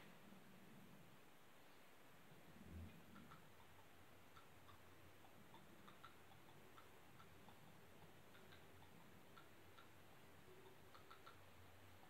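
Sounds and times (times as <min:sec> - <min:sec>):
faint ticks: 0:02.6 - 0:12.0.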